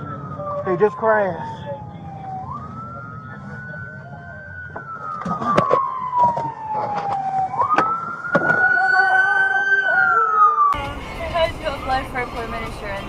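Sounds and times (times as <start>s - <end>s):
police siren wailing: 0.0s - 13.0s.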